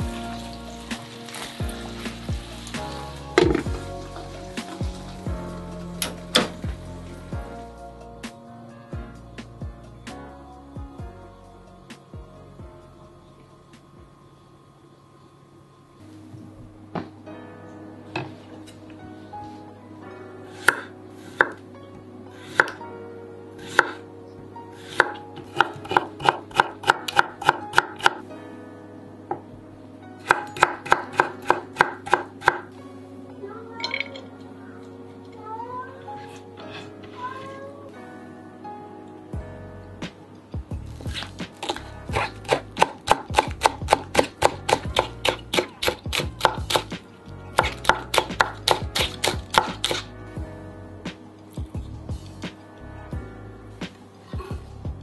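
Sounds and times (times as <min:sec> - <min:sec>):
knife chopping green onions: 0:24.9 - 0:28.2, 0:30.2 - 0:32.6, 0:41.6 - 0:46.9, 0:47.6 - 0:50.0.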